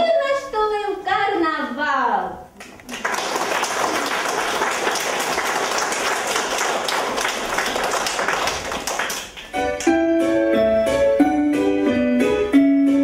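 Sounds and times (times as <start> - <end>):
children clapping: 2.6 - 10.0
keyboard playing piano tune: 9.3 - 13.0.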